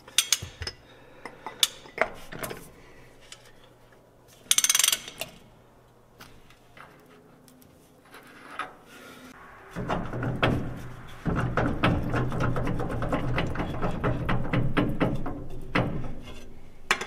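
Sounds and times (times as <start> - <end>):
metal tools clinking and rattling: 0.0 - 0.8.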